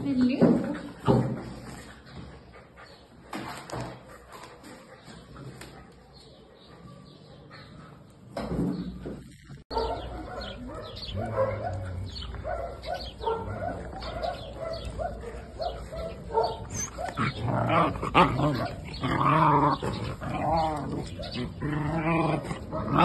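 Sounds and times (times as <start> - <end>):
puppies yipping and barking: 9.6 - 23.0.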